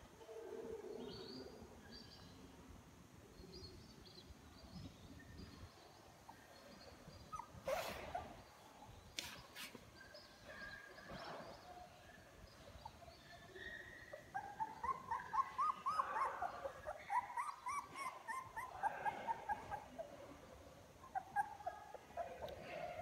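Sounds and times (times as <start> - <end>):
puppies whining and squeaking: 6.9 - 8.5, 13.6 - 20.1, 21.0 - 23.0
puppy high squeals: 7.3 - 8.3, 14.4 - 19.8.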